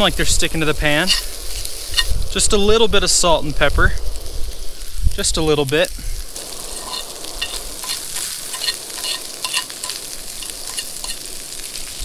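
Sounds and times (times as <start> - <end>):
food sizzling in skillet: 0.0 - 12.0
fork scraping pan: 1.0 - 2.2, 6.6 - 11.8.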